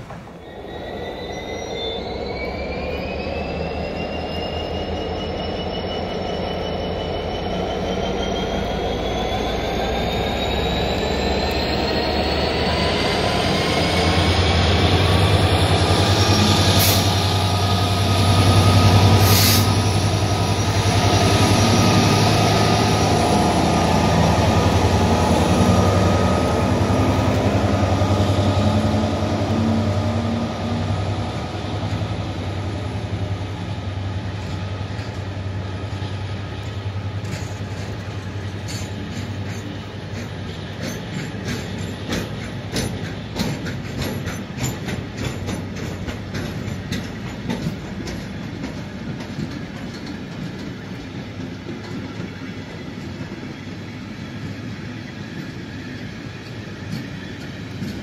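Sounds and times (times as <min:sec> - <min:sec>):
diesel locomotive engine drone: 0:00.0 - 0:58.0
train wheels squealing: 0:00.0 - 0:58.0
rising whine: 0:00.4 - 0:32.8
sharp clicks of wagons: 0:37.2 - 0:52.4.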